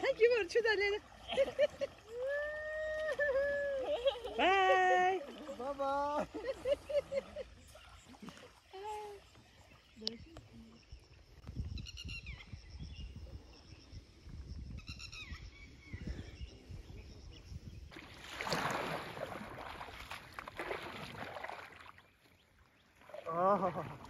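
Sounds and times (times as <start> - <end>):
wind rumble on microphone: 10.2 - 18.1
splashy rushing noise: 18.0 - 21.7.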